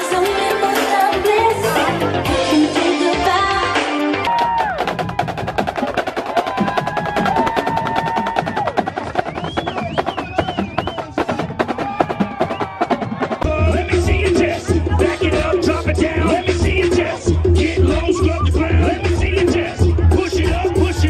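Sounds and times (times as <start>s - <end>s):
snare drums playing fast rhythms: 4.2s - 21.0s.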